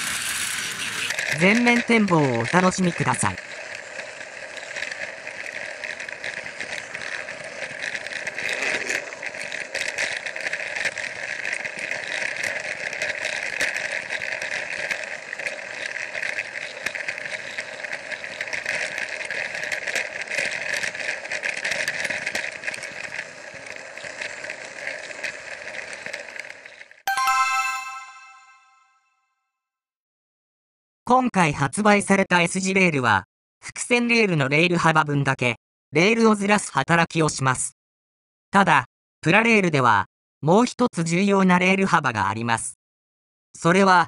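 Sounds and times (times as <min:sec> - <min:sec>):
toy train motor whine: 0:00.0 - 0:27.0
wheels clicking on plastic track: 0:00.0 - 0:27.0.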